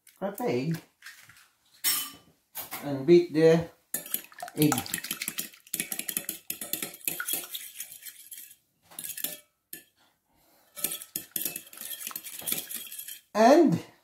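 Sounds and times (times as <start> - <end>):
fork clinking against glass bowl: 4.0 - 9.9, 10.8 - 13.3.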